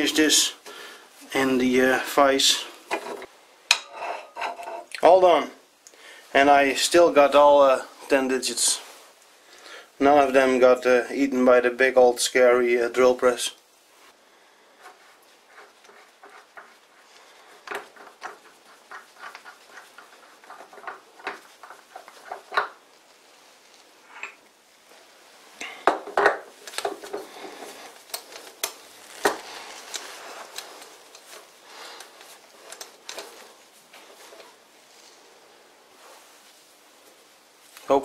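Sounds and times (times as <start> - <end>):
metal clinks and scrapes: 2.9 - 4.9.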